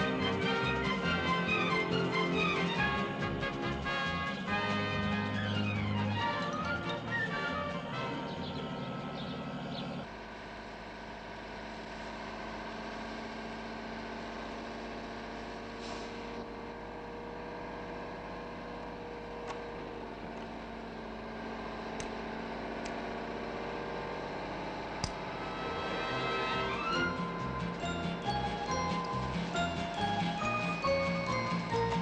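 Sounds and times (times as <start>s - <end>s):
theme music: 0.0s - 10.0s, 25.2s - 32.0s
truck engine running: 0.0s - 32.0s.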